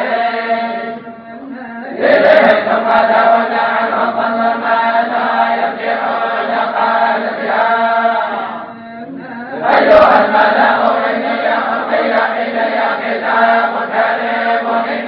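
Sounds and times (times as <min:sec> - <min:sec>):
group chanting in unison: 0:00.0 - 0:01.1, 0:01.7 - 0:15.0.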